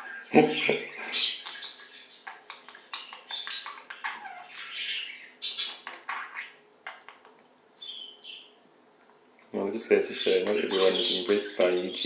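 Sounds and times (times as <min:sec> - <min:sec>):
budgerigars chattering: 0:00.0 - 0:06.6, 0:07.8 - 0:08.5, 0:10.2 - 0:12.0.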